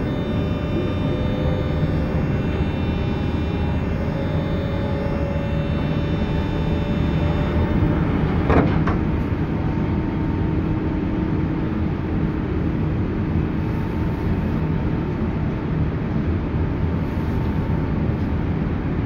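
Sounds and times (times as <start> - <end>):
faint steady tone: 0.0 - 8.5
train wheels and motors rumbling: 0.0 - 19.0.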